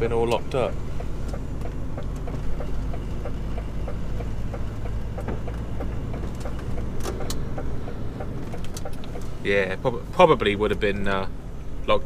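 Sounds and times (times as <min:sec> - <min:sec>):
diesel engine humming: 0:00.0 - 0:12.0
turn signal ticking: 0:00.0 - 0:12.0
sharp clicks: 0:01.0 - 0:09.3.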